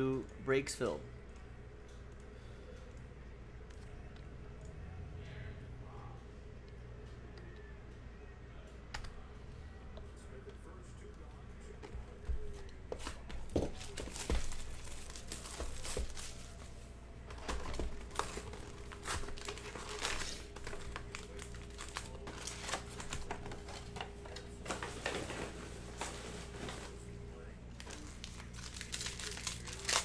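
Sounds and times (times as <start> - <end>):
plastic wrapping crinkling and tearing: 13.8 - 16.6, 17.4 - 25.5, 27.7 - 30.0.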